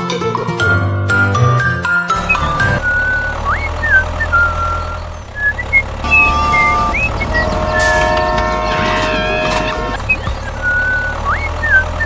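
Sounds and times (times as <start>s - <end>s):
tractor engine running: 2.1s - 12.0s
chirping whistles: 2.2s - 8.4s, 10.0s - 12.0s
held chord of tones: 6.0s - 10.0s.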